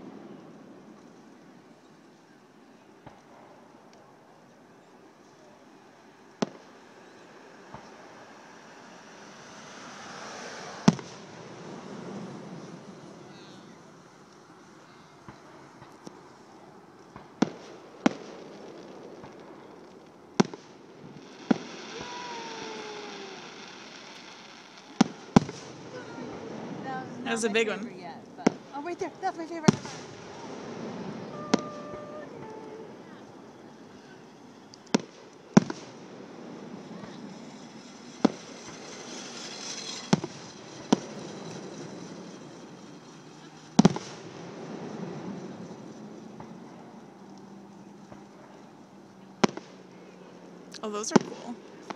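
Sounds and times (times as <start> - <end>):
steady background hiss: 0.0 - 51.9
faint fireworks pops: 3.0 - 8.5, 10.2 - 51.9
fireworks shells bursting: 17.1 - 48.7
faint falling tone: 31.2 - 34.2.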